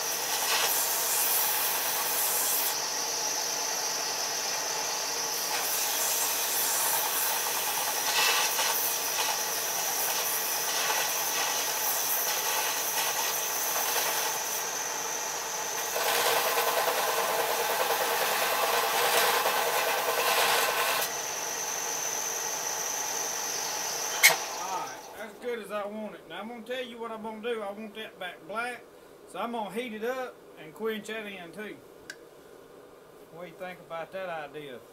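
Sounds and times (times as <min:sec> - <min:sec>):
belt grinder grinding steel: 0:00.0 - 0:25.1
high machine whine: 0:00.0 - 0:25.4.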